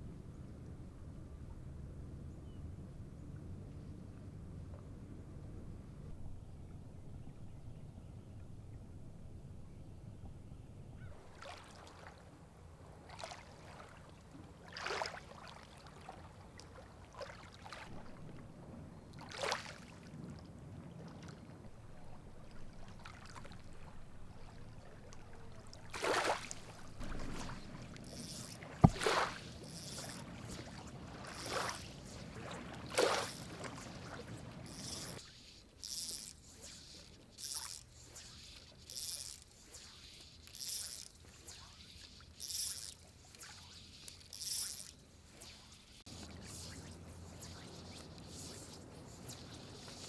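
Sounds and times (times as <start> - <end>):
water splashing and swishing: 11.1 - 50.0.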